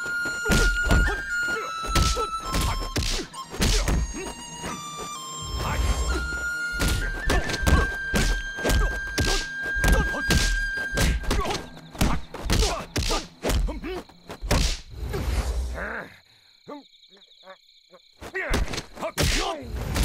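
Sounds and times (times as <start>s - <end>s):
punch and kick thuds: 0.4s - 1.2s, 1.9s - 4.2s, 6.8s - 13.8s, 14.4s - 14.9s.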